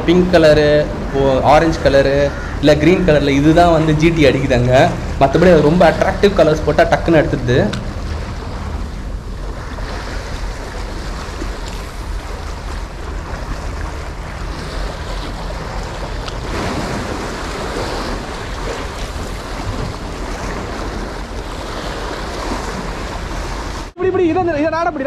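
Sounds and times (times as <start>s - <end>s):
wind rumbling on microphone: 0.0s - 24.0s
sea waves breaking on rocks: 1.4s - 24.0s.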